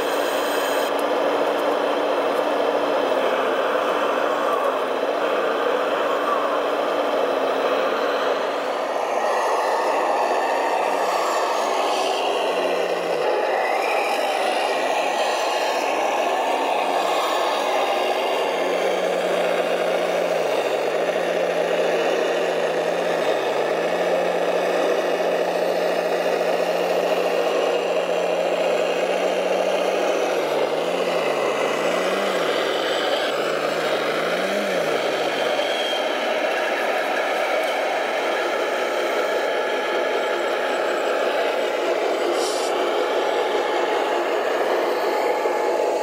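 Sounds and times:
engine-like hum: 0.0 - 46.0
whir and rattle of model drives: 0.0 - 46.0.

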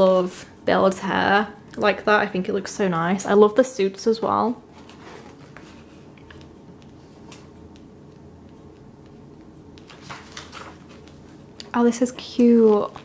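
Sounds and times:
room hum: 0.0 - 13.0
magazine pages rustling: 4.7 - 7.6, 9.7 - 13.0.

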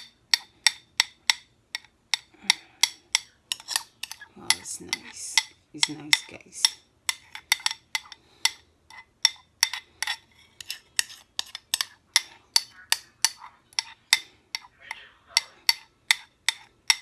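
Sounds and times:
metal spoon scraping glass: 3.5 - 4.3, 7.1 - 12.0.

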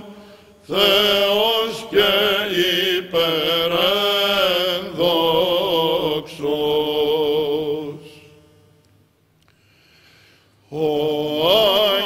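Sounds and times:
held vocal drone: 0.0 - 8.4, 10.6 - 12.0.

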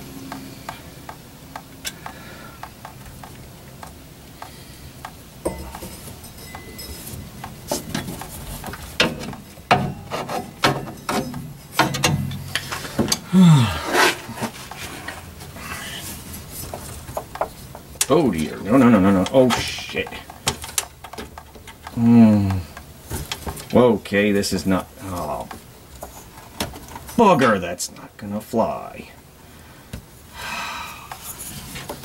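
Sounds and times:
tools clicking and knocking: 1.1 - 13.2, 19.1 - 22.0.

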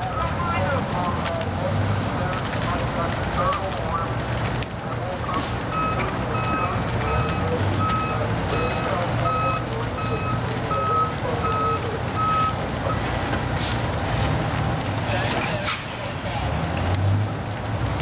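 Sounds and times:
reversing alarm beeping: 5.7 - 12.6.

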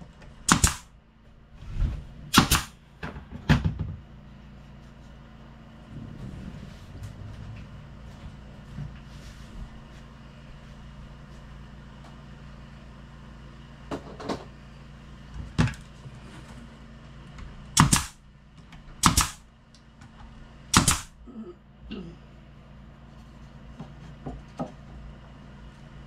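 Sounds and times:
nail gun firing: 0.4 - 0.9, 2.3 - 2.8, 17.8 - 18.2, 19.0 - 19.5, 20.7 - 21.2.

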